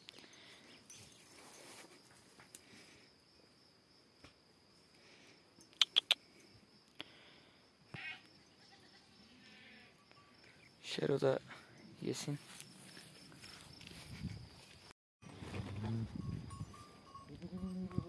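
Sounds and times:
insects chirring: 0:00.0 - 0:14.9, 0:16.1 - 0:18.0
sharp clicks: 0:05.7 - 0:06.2.

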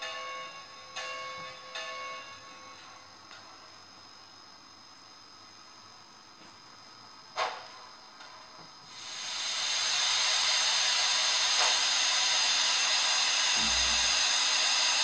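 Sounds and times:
steam hiss from small speaker: 0:08.9 - 0:15.0.

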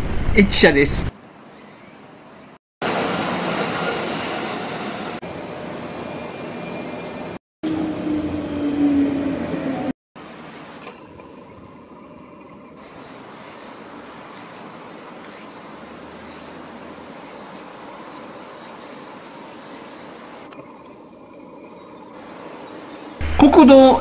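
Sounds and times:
high-pitched insect call: 0:10.2 - 0:23.2.

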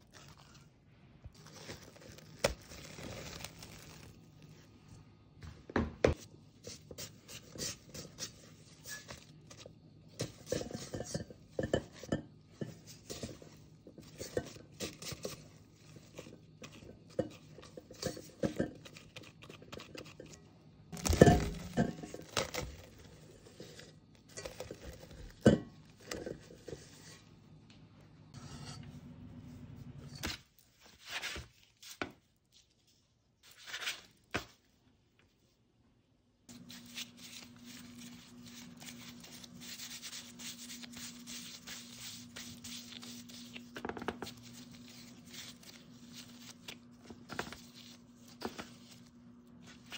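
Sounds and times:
dough scraping in metal bowl: 0:06.6 - 0:27.4, 0:28.3 - 0:29.0, 0:36.5 - 0:49.9.

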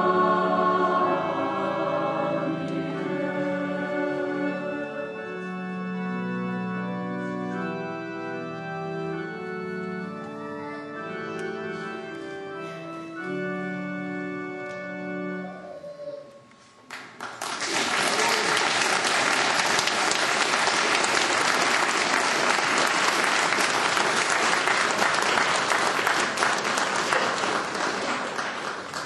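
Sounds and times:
audience applause: 0:16.9 - 0:29.0.

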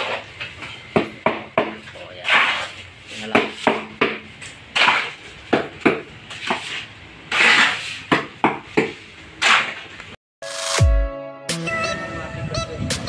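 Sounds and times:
gritty scraping of mortar mixing: 0:01.8 - 0:10.1.

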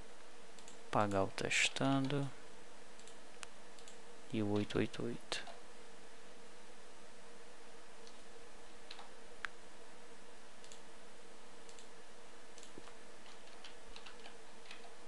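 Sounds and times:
faint hiss and hum: 0:00.0 - 0:15.0
computer mouse clicks: 0:00.6 - 0:00.8, 0:03.0 - 0:04.7, 0:08.0 - 0:08.3, 0:08.9 - 0:09.6, 0:10.6 - 0:10.8, 0:11.6 - 0:11.9, 0:12.6 - 0:15.0.

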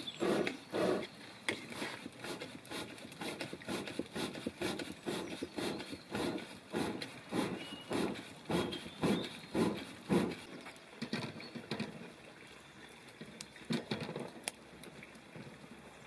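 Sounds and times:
hand bellows puffing air: 0:00.0 - 0:10.5.

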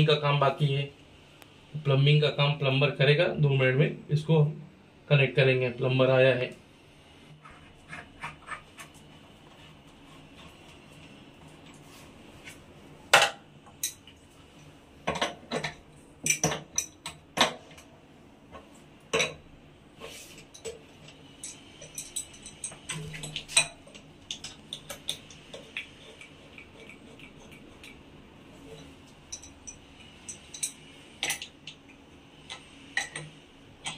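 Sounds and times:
metal hose fittings clinking: 0:20.3 - 0:28.0, 0:28.6 - 0:31.8.

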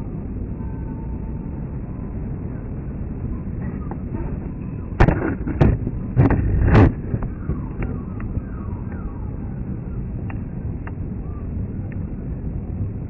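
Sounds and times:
jet rumbling overhead: 0:00.0 - 0:13.0
loud sudden thumps: 0:05.0 - 0:07.3.

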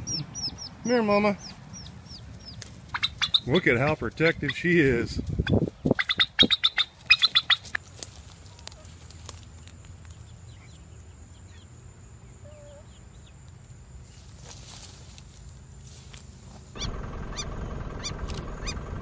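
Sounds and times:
turkey calling: 0:00.0 - 0:09.0, 0:16.8 - 0:18.9
small birds chirping: 0:00.0 - 0:18.9.

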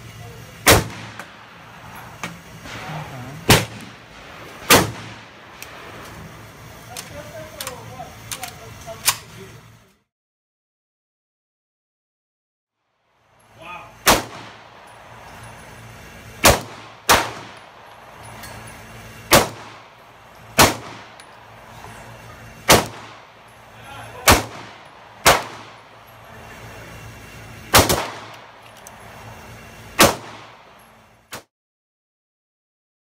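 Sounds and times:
pistol shots with echo: 0:00.6 - 0:06.5, 0:14.0 - 0:29.2, 0:30.0 - 0:30.8.

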